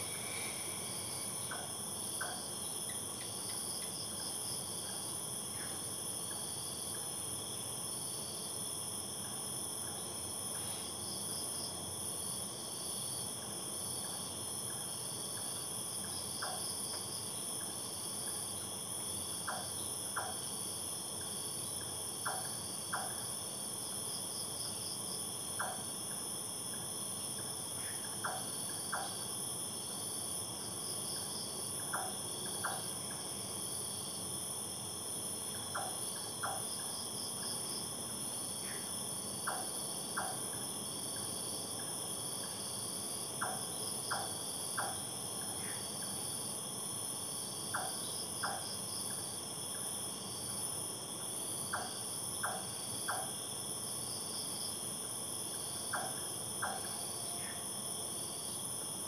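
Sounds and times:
short insect chirps: 0.0 - 4.0
crickets trilling: 0.0 - 59.0.

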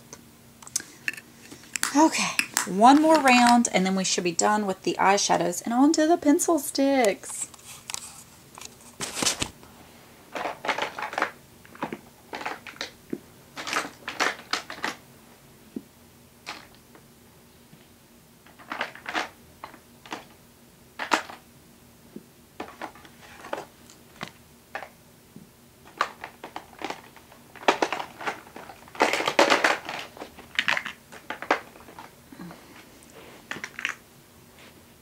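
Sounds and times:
clicks and knocks of handling things: 7.3 - 9.6, 10.4 - 15.0, 21.0 - 21.4, 22.6 - 25.0, 25.8 - 32.1, 33.5 - 34.0.

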